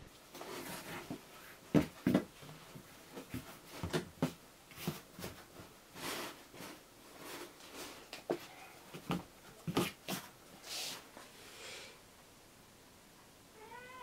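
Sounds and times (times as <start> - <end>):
hands bumping cardboard box: 1.0 - 2.3.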